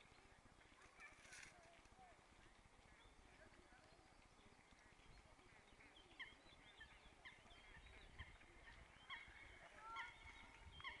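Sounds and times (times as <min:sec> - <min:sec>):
bird chirps: 0:02.8 - 0:11.0.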